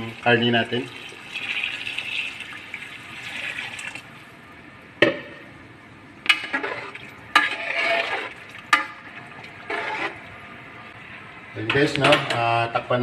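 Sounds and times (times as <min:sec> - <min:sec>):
water pouring into pot: 0:00.0 - 0:04.3.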